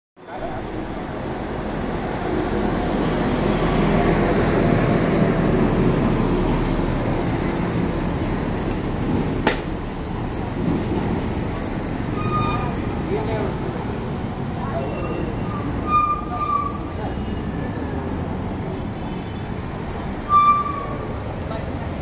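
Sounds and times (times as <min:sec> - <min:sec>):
street traffic noise: 0:00.2 - 0:22.0
bus engine running: 0:00.4 - 0:22.0.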